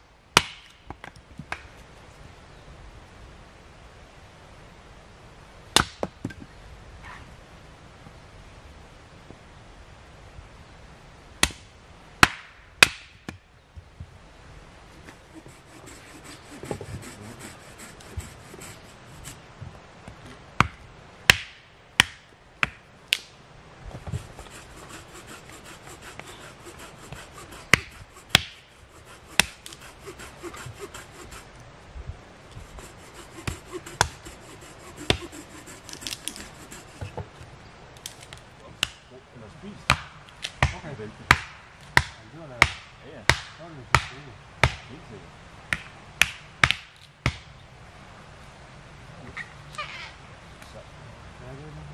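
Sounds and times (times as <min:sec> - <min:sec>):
wood scraping and rasping: 0:15.0 - 0:19.4, 0:24.0 - 0:31.6, 0:32.5 - 0:37.4.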